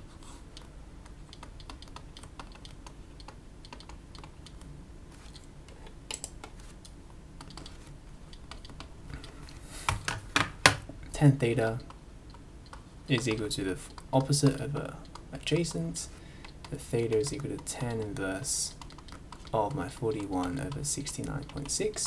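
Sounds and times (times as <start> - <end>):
typing clicks on keys: 0.6 - 4.6, 7.4 - 9.3, 12.6 - 22.0.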